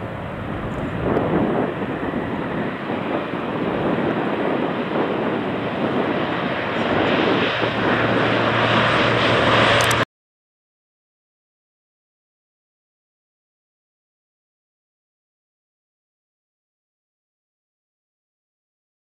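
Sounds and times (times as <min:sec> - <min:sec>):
jet engines roaring: 0:00.0 - 0:10.1.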